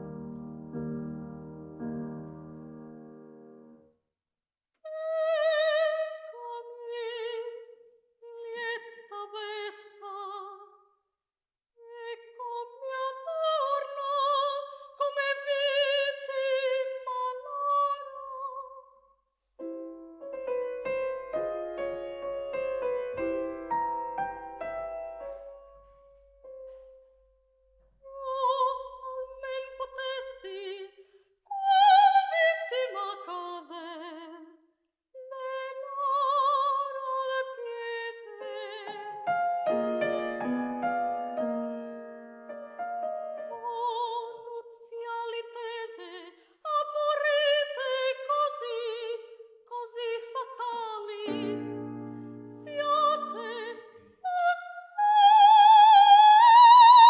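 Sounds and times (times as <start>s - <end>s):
grand piano: 0.0s - 3.8s, 19.6s - 30.5s, 36.0s - 44.5s, 50.4s - 57.0s
operatic soprano singing: 4.9s - 10.8s, 11.8s - 18.9s, 28.0s - 34.6s, 35.2s - 39.4s, 43.5s - 57.0s.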